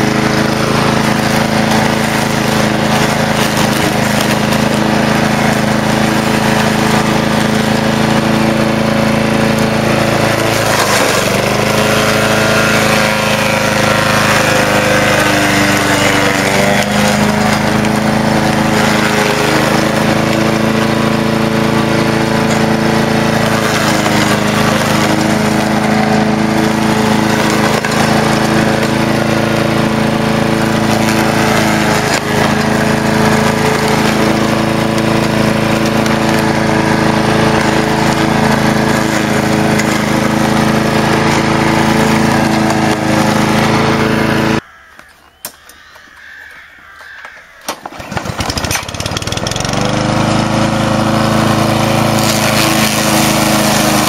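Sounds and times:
lawn mower engine cutting grass: 0:00.0 - 0:44.7, 0:45.8 - 0:54.0.

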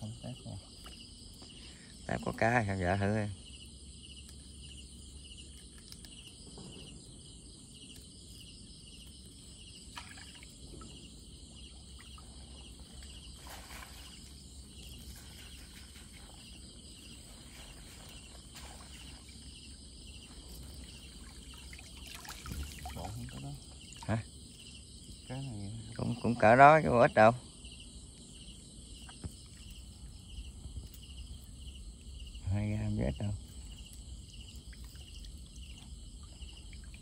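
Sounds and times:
crickets chirping: 0:00.0 - 0:37.0
water splashing and dripping: 0:09.4 - 0:24.6, 0:33.4 - 0:37.0.

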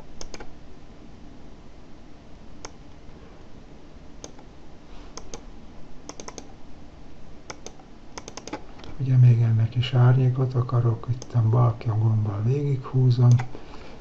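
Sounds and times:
low room hum: 0:00.0 - 0:14.0
mouse and keyboard clicks: 0:00.2 - 0:00.5, 0:05.2 - 0:05.4, 0:06.1 - 0:06.5, 0:07.5 - 0:08.7.

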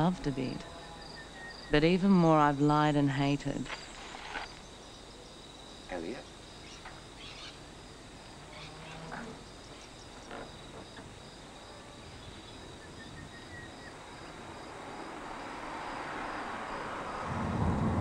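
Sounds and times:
insects chirping: 0:00.0 - 0:18.0
rushing noise: 0:14.8 - 0:18.0.

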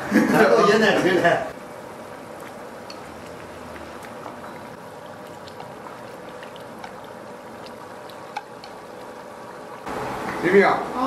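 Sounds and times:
broth bubbling in a pot: 0:01.5 - 0:10.8.

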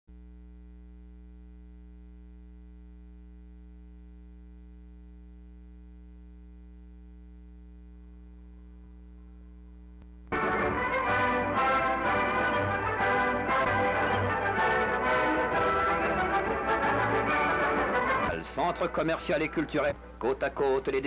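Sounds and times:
electrical mains hum: 0:00.1 - 0:10.4.

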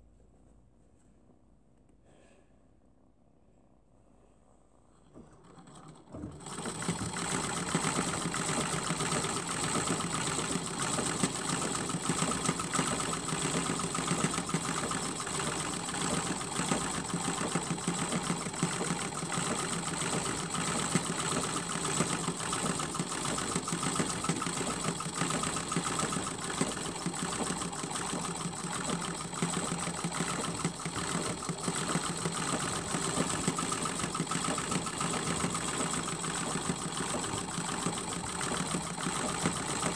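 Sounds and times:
sewing machine running: 0:05.2 - 0:39.9.

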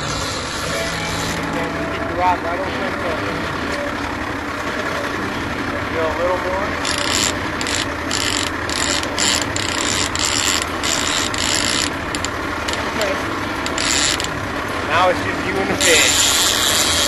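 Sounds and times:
low boat hum: 0:00.0 - 0:17.0
fishing reel ratcheting: 0:06.8 - 0:14.4, 0:15.8 - 0:17.0.

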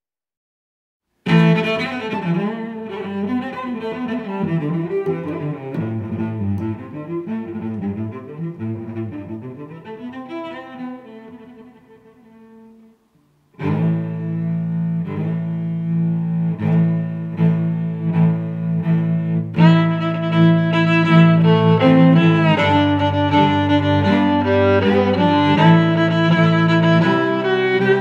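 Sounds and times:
pirate-style music with low strings: 0:13.6 - 0:28.0.

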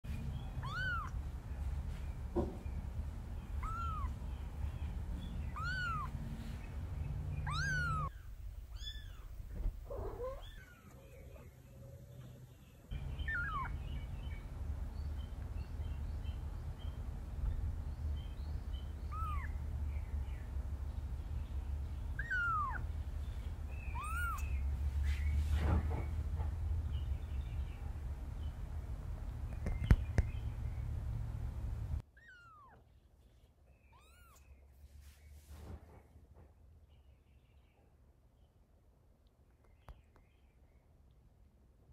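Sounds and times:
kitten mewing: 0:00.5 - 0:01.2, 0:03.6 - 0:04.3, 0:05.5 - 0:06.2, 0:07.4 - 0:10.9, 0:13.2 - 0:13.8, 0:19.1 - 0:19.6, 0:22.2 - 0:22.9, 0:23.9 - 0:24.5.

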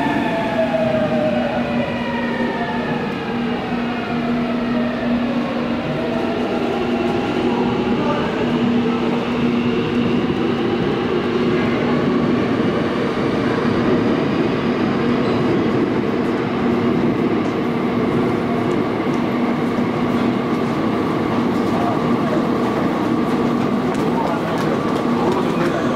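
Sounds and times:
train wheels rumbling on rail: 0:00.0 - 0:25.9.

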